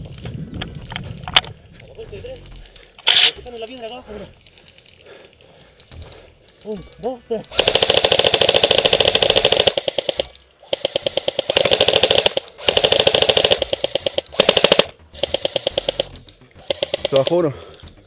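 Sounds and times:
airsoft rifle full-auto bursts: 0:03.0 - 0:03.4, 0:07.5 - 0:17.4.

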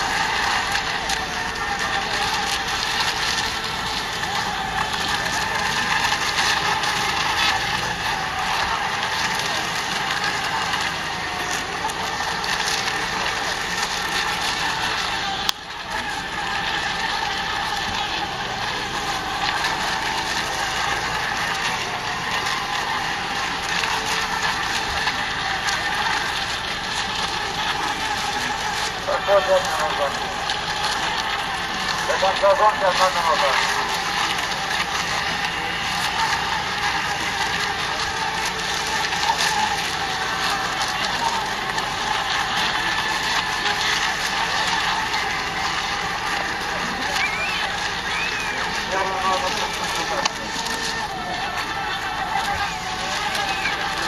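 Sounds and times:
rc boats motor whine: 0:00.0 - 0:54.0.

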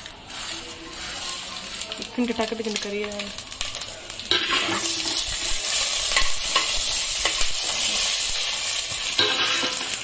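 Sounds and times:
spices sizzling in hot oil: 0:00.0 - 0:10.0
spoon scraping a pan: 0:03.7 - 0:10.0.

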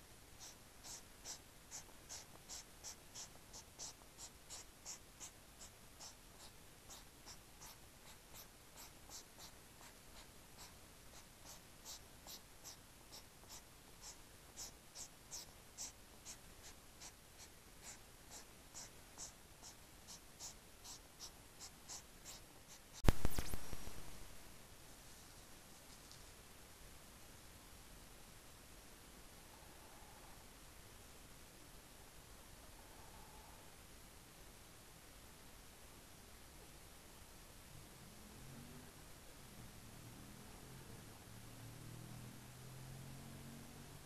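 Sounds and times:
hedgehogs snorting puffs: 0:00.4 - 0:23.0.

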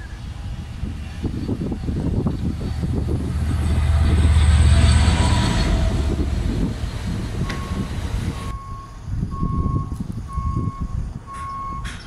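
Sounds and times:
freight train rumbling past: 0:00.0 - 0:09.0
low rumble: 0:00.0 - 0:10.7
reversing alarm beeping: 0:04.7 - 0:12.0.

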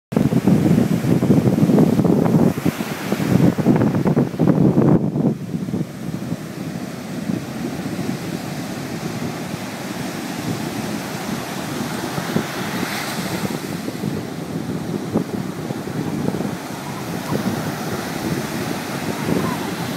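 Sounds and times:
wind buffeting microphone: 0:00.1 - 0:19.9
ocean surf breaking: 0:00.2 - 0:19.9.

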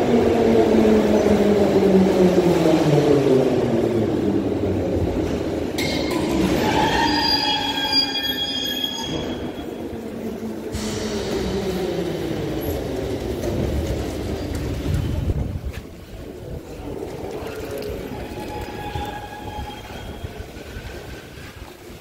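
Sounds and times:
high brake squeal: 0:06.5 - 0:09.8, 0:18.3 - 0:21.5.

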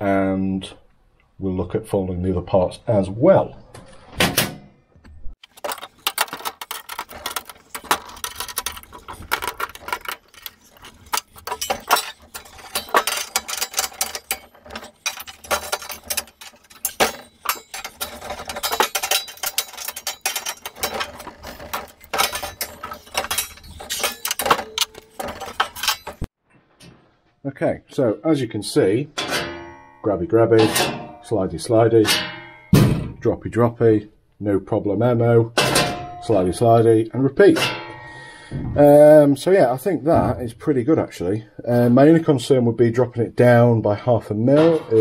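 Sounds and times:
metal tools clinking and clanking: 0:05.4 - 0:26.3, 0:29.2 - 0:31.3, 0:35.6 - 0:36.4, 0:44.5 - 0:45.0.

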